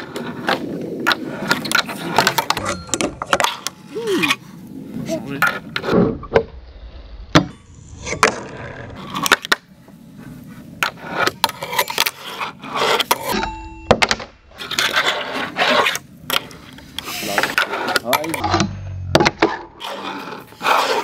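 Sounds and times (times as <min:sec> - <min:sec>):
small wheels rolling on wood: 0:19.4 - 0:21.0.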